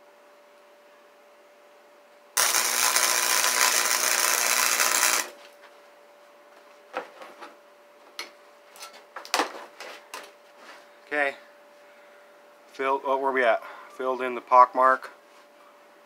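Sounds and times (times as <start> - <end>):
welder arc crackling: 2.4 - 5.4.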